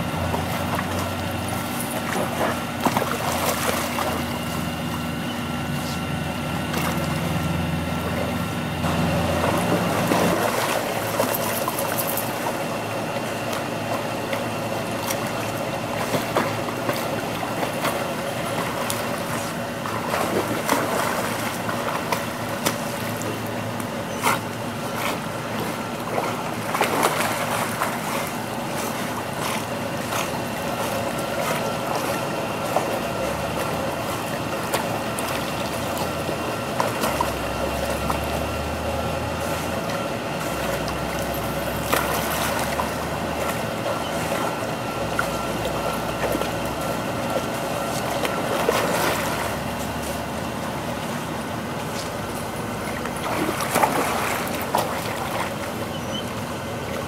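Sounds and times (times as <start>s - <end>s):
water splashing and sloshing: 0.0s - 57.0s
sharp splashes: 8.9s - 12.6s, 24.3s - 56.3s.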